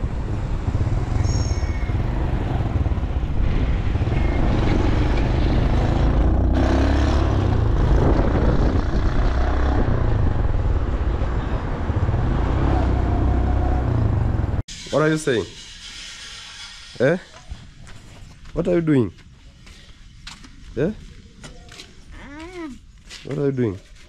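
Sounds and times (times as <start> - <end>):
wind rumble on microphone: 7.2 - 14.6.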